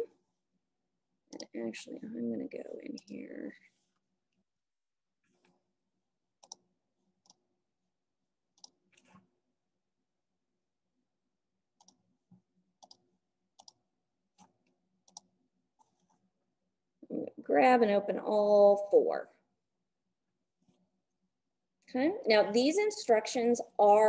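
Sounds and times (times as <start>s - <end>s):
keyboard and mouse clicks: 1.3s - 1.6s, 6.4s - 6.6s, 8.5s - 9.2s, 11.8s - 12.0s, 12.8s - 13.0s, 13.6s - 13.8s, 14.4s - 16.2s.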